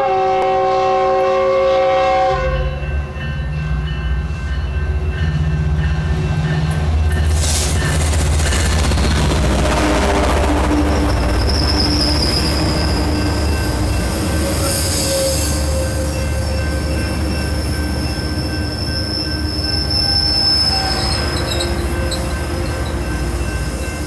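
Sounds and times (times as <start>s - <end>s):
train coaches rumbling past: 0.0s - 24.0s
high-pitched wheel squeal: 11.3s - 13.6s, 14.3s - 16.7s, 18.1s - 22.9s.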